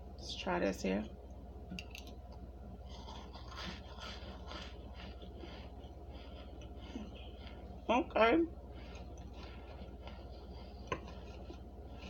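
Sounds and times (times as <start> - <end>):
person chewing crunchy food: 2.8 - 7.8, 8.6 - 12.0.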